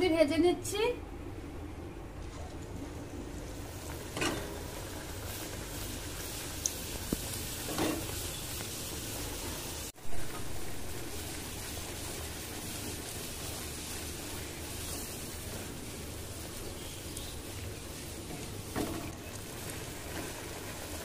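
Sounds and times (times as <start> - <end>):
food deep-frying in oil: 2.6 - 21.0.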